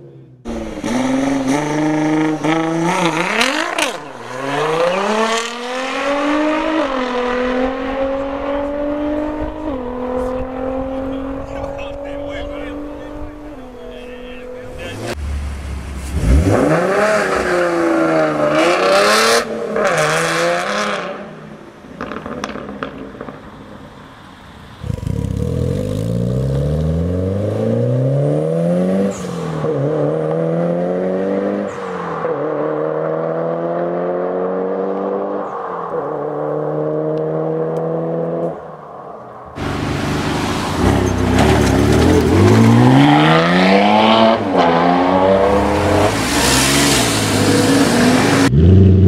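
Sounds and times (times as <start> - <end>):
car engine accelerating hard: 0.5 - 21.3, 39.6 - 49.0.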